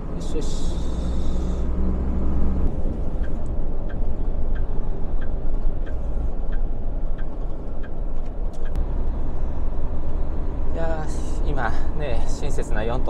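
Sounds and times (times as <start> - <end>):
truck engine and road drone: 0.0 - 13.0
turn signal ticking: 0.0 - 13.0.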